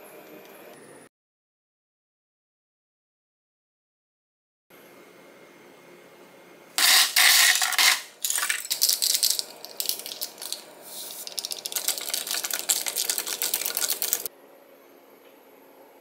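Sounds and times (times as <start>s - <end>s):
ice cubes clinking against glass: 6.8s - 10.6s, 11.2s - 14.3s
packet crinkling and tearing: 8.3s - 14.3s.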